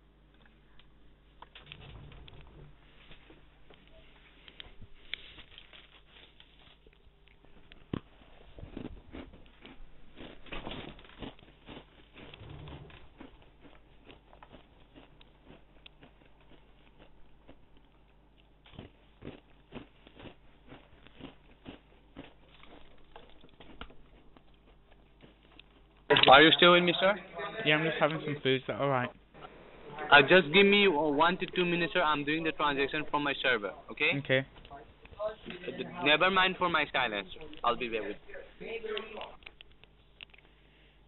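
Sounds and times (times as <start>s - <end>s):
low steady hum: 0.0s - 41.0s
person chewing food: 0.4s - 26.1s, 39.4s - 41.0s.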